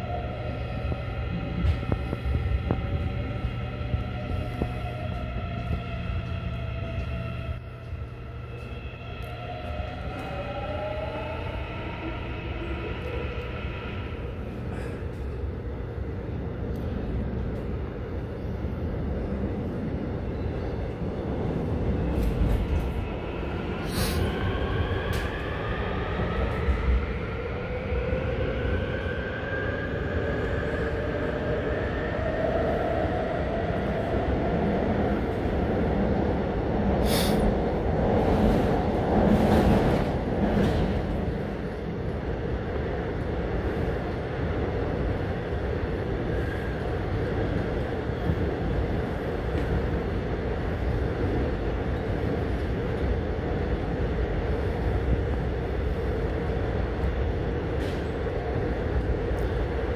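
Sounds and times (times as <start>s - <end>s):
wheels rumbling on rail: 0.0s - 59.9s.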